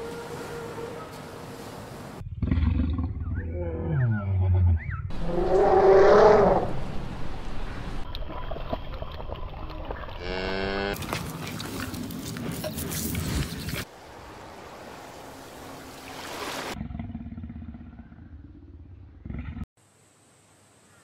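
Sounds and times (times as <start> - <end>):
lion roar: 2.2 - 6.8
cattle mooing: 10.2 - 11.0.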